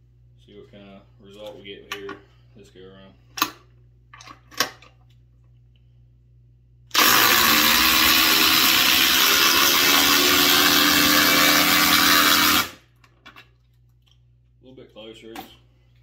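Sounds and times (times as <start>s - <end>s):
impact drivers driving screws: 6.9s - 12.8s.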